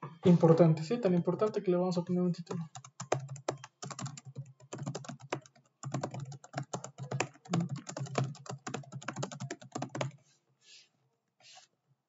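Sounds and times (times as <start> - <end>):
fast typing on keyboard: 2.5 - 10.2.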